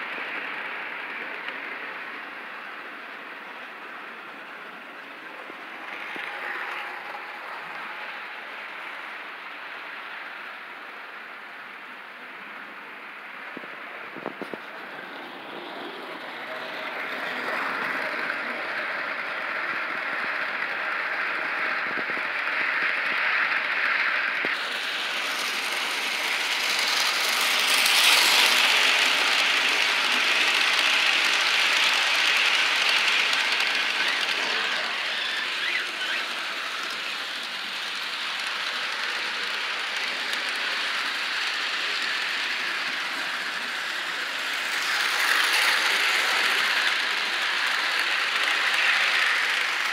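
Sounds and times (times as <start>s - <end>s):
model train wheels rattling: 0.0s - 9.9s, 14.2s - 49.9s
small electric motor whirring: 24.5s - 49.9s.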